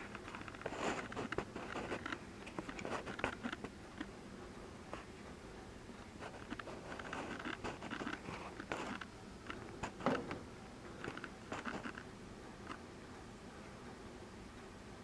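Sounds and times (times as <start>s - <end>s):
rustling and crunching: 0.0s - 3.8s, 6.2s - 10.3s
small clicks: 11.0s - 12.8s.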